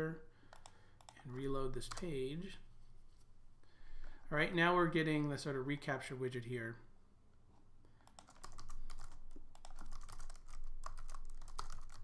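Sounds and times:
computer keyboard typing: 0.5s - 2.2s, 8.0s - 12.0s.

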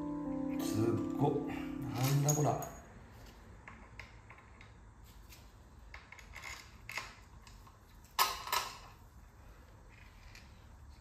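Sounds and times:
metal tools and screws clinking: 1.9s - 3.0s.

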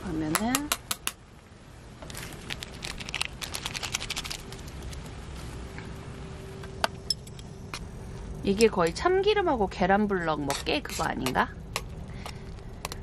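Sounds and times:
faint steady hum: 0.0s - 13.0s
plastic sachet crinkling: 2.1s - 5.0s.

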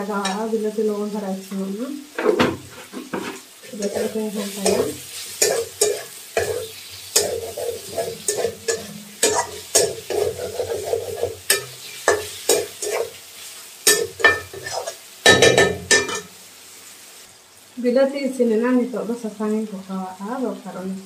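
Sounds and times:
frying oil sizzling: 0.0s - 21.0s
metal spatula scraping a pan: 2.2s - 16.4s.

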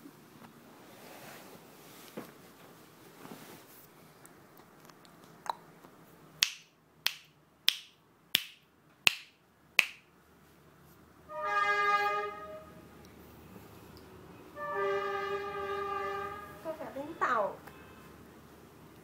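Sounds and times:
finger snaps: 6.4s - 10.0s
steady horn-like tone: 11.2s - 13.0s, 14.4s - 17.2s.

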